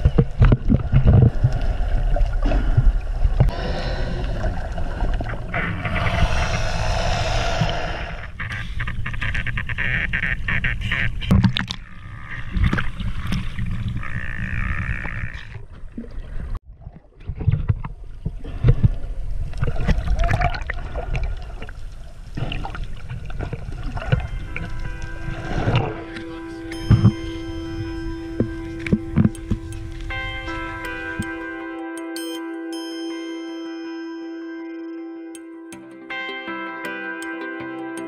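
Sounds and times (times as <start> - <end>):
water sloshing and rushing: 0.0 - 8.5, 11.3 - 31.4.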